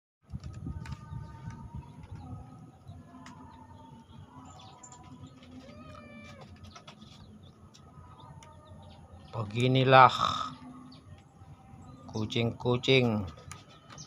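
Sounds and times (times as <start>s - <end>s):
cat meowing: 5.6s - 6.6s.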